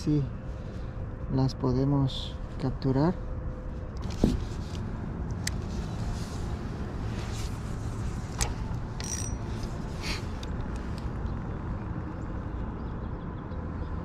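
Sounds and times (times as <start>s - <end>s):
fishing reel clicks and ticks: 9.0s - 9.4s.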